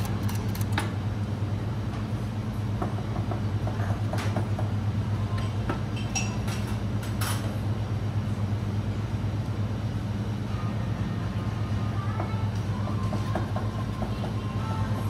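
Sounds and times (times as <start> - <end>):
kitchen exhaust hood drone: 0.0 - 15.0
utensils clinking on steel counter: 5.4 - 7.5.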